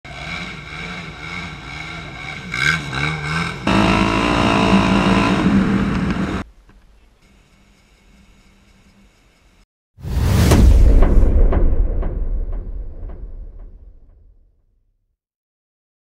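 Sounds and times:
quad engines revving: 0:00.1 - 0:06.5.

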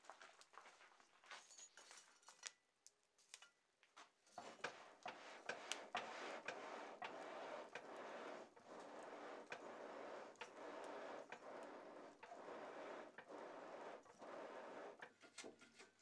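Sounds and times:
charcoal crackling and popping: 0:04.6 - 0:16.0.

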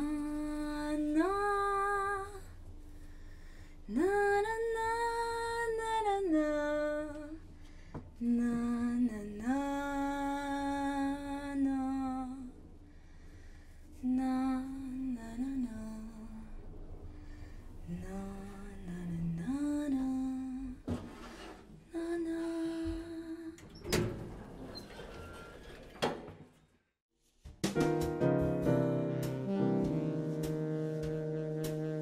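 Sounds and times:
woman humming: 0:29.3 - 0:32.0.

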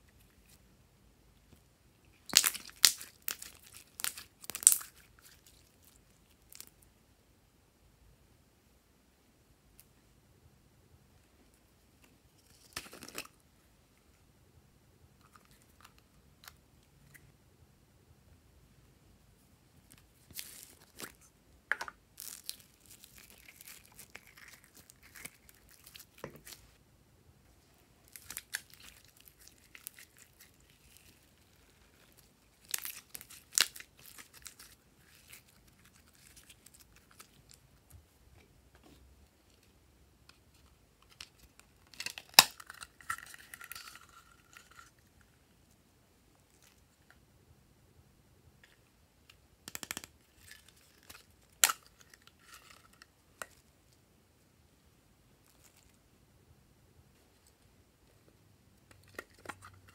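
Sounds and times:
slime crackling and popping: 0:02.2 - 0:05.7, 0:41.9 - 0:43.8.

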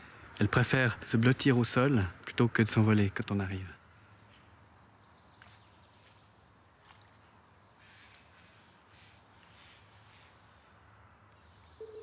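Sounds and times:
bird high-pitched calls: 0:07.2 - 0:12.0.

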